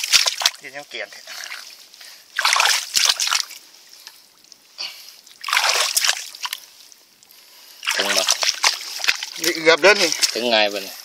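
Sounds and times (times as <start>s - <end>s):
mud sloshing and squelching: 0.0s - 11.0s.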